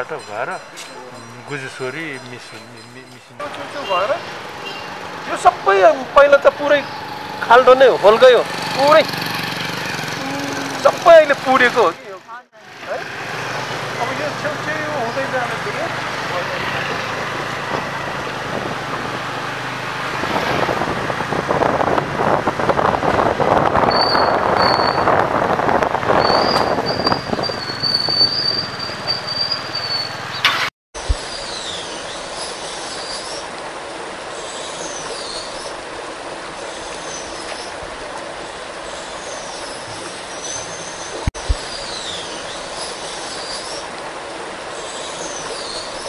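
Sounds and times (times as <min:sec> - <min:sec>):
motorbike engine: 0:03.4 - 0:30.7
high sliding squeals: 0:23.8 - 0:25.2, 0:26.1 - 0:30.7.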